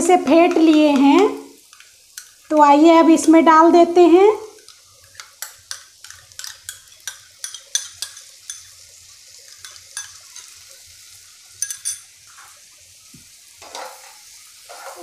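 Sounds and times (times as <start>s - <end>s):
faint pan sizzling: 0.0s - 15.0s
spoon clicking on metal bowl: 4.6s - 8.7s, 9.6s - 10.5s, 11.6s - 12.0s.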